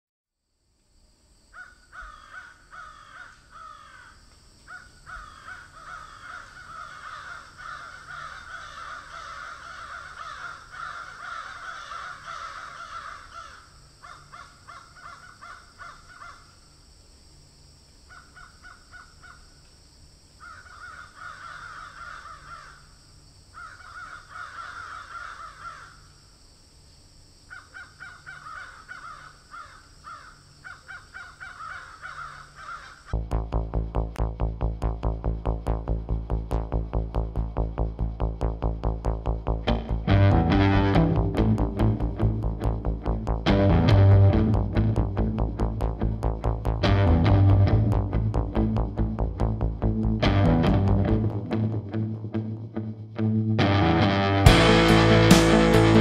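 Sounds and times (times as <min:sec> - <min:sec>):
birds calling harshly: 0:01.6 - 0:16.5, 0:20.4 - 0:22.9, 0:23.5 - 0:26.1, 0:27.5 - 0:33.1
steady high-pitched drone: 0:33.2 - 0:56.0.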